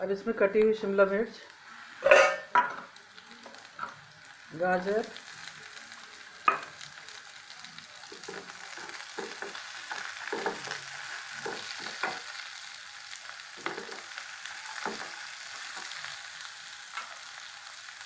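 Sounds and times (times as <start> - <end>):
vegetables sizzling in oil: 0.0 - 18.0.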